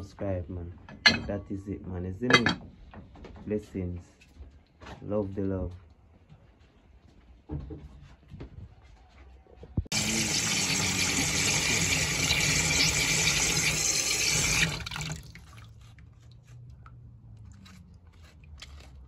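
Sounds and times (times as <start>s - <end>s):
water splashing over vegetables: 9.9s - 16.7s.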